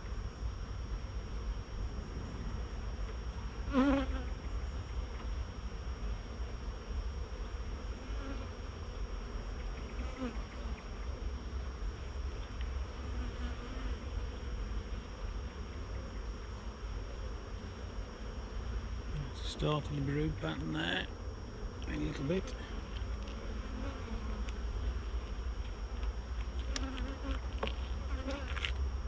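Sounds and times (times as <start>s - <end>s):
steady low rumble: 0.0s - 3.7s
honeybees buzzing: 0.0s - 29.0s
bee flying close by: 1.9s - 5.4s, 6.0s - 19.1s, 21.1s - 29.0s.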